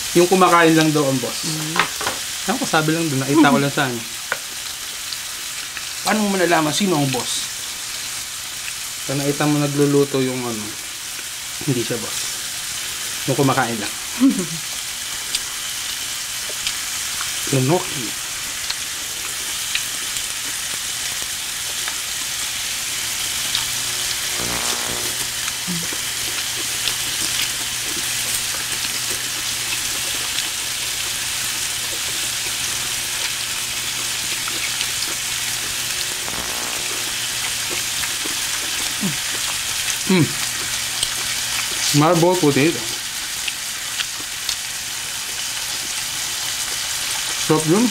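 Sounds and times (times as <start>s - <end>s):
pork sizzling on grill pan: 0.0s - 47.9s.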